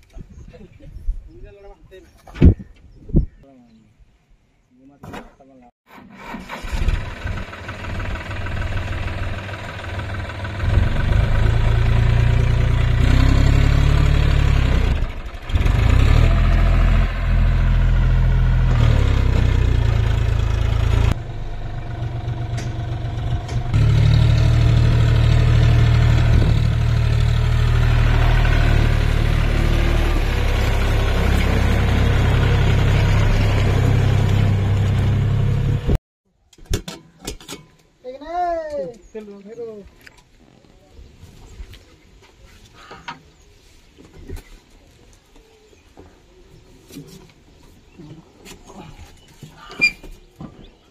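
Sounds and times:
diesel tractor engine under load: 5.9 - 36.0.

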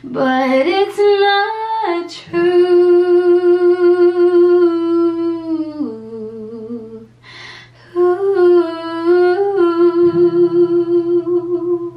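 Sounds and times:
breath: 7.2 - 7.9
woman humming: 8.0 - 11.9.

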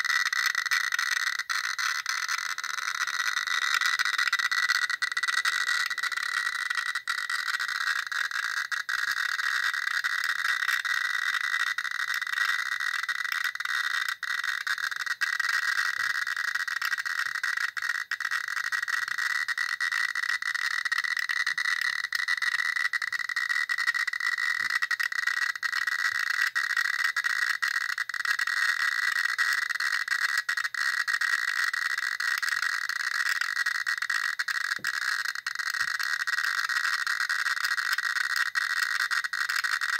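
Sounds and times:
geiger counter crackling buzz: 0.0 - 39.9.

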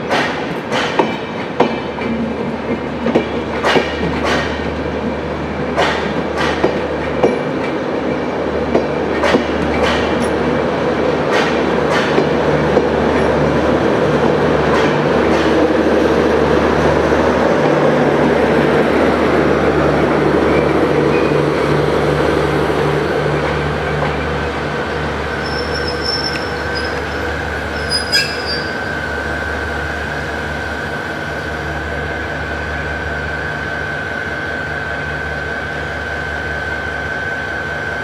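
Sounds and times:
train rumble: 0.0 - 38.0
wheels clacking over rail joints: 5.7 - 10.5.

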